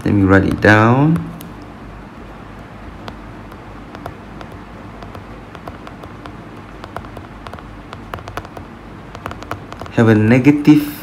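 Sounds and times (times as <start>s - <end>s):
steady low hum: 0.0s - 11.0s
stylus tapping on a screen: 1.1s - 1.6s, 3.0s - 10.0s.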